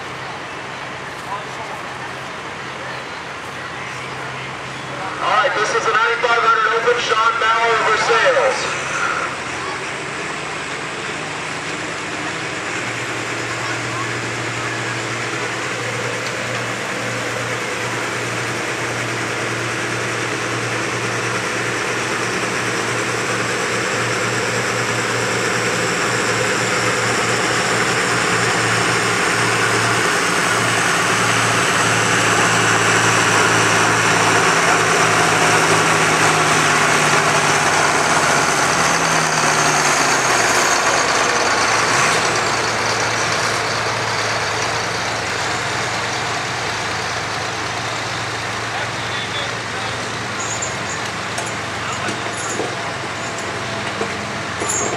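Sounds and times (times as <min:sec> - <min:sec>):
tractor engine running under load: 0:00.0 - 0:54.9.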